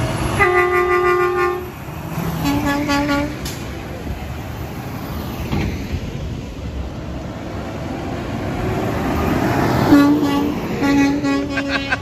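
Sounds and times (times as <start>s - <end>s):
road traffic passing: 0.0s - 12.0s
vehicle horn: 0.4s - 1.7s, 2.4s - 3.4s, 9.9s - 12.0s.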